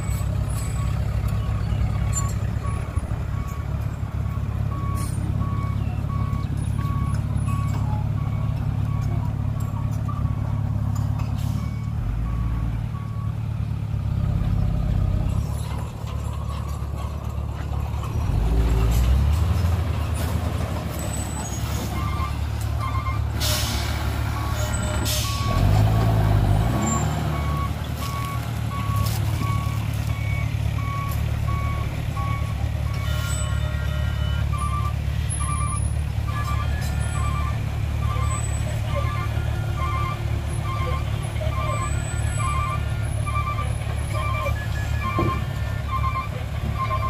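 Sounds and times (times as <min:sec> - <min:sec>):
diesel engine revving: 0:00.0 - 0:47.0
reversing alarm beeping: 0:00.5 - 0:10.4, 0:21.4 - 0:47.0
air brake hiss: 0:23.4 - 0:24.0.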